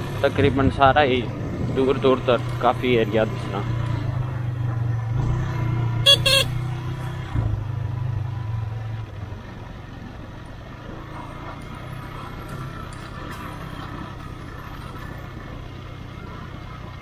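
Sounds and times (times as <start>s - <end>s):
motorcycle engine running: 0.0s - 17.0s
horn beeps: 6.0s - 6.6s.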